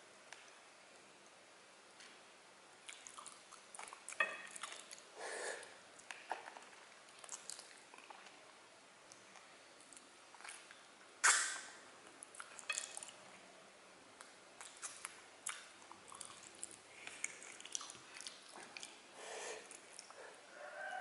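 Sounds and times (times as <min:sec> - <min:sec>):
wet eating mouth sounds: 0:02.8 - 0:08.4, 0:09.1 - 0:13.2, 0:14.2 - 0:20.3.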